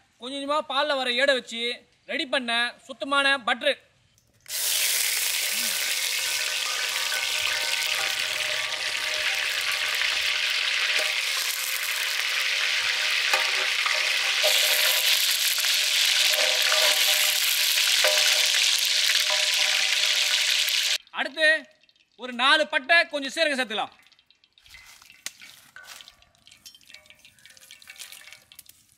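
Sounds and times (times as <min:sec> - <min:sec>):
butter sizzling in hot oil: 0:04.4 - 0:21.0, 0:24.1 - 0:28.9.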